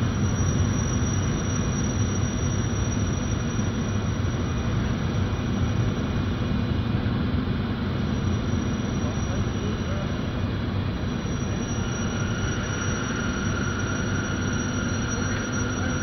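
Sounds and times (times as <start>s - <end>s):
train rolling rumble: 6.6s - 16.0s.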